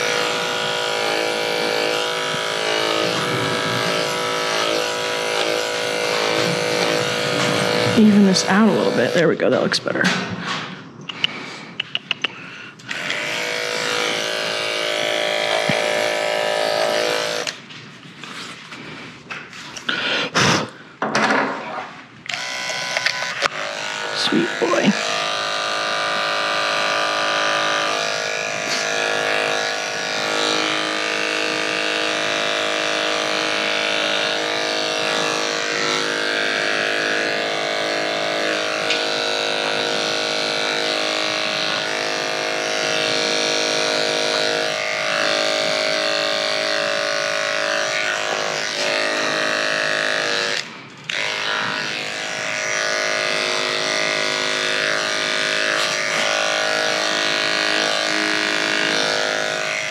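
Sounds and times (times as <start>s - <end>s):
electric clipper buzzing: 0.0s - 10.3s, 11.1s - 17.7s, 22.2s - 59.9s.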